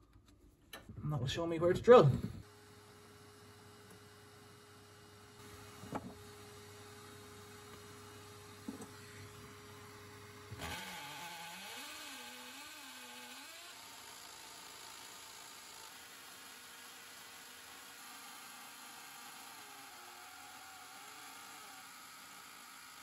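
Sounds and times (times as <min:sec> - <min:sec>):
electric motor whirring: 0:08.7 - 0:23.0.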